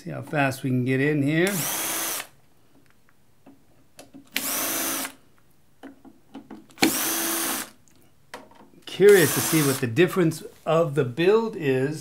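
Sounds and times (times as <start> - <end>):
cordless drill whirring: 1.4 - 2.3, 4.3 - 5.2, 6.8 - 7.8, 9.1 - 9.8
handling clicks and knocks: 5.8 - 6.8.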